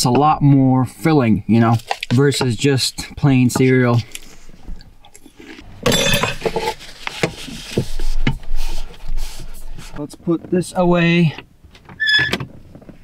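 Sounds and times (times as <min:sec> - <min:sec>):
dishes clinking and knocking: 0:05.8 - 0:06.7
rustling scrape on table: 0:06.4 - 0:10.0.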